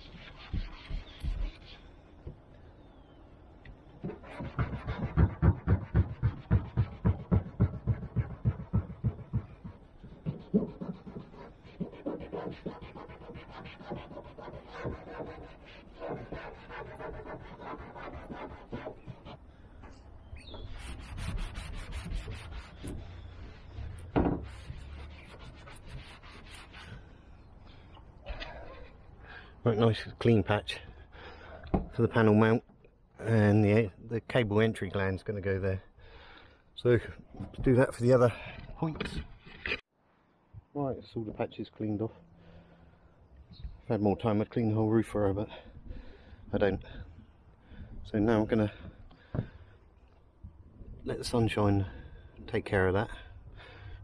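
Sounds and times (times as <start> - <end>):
cloth scrubbing van roof: 0.0 - 1.9, 4.0 - 19.5, 20.4 - 27.1.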